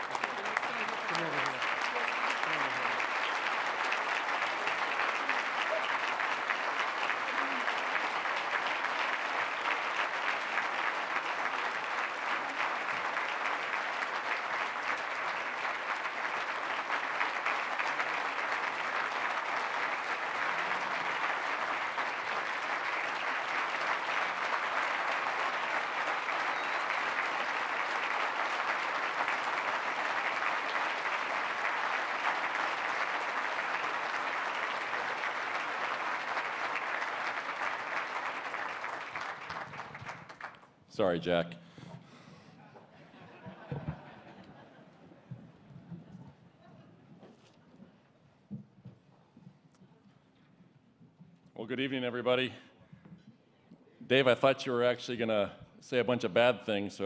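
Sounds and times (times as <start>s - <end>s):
audience applauding: 0.0s - 40.7s.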